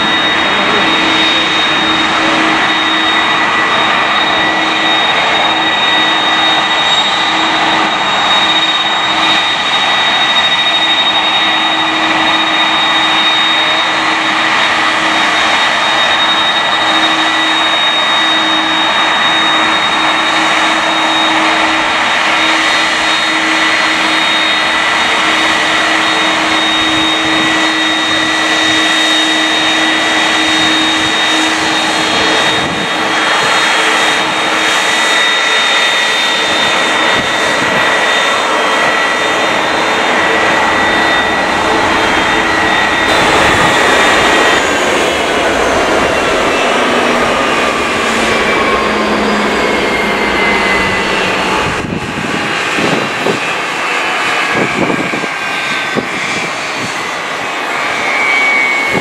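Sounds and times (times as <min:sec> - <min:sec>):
jet engines rushing and whining: 0:00.0 - 0:59.0
low hum: 0:11.0 - 0:53.0.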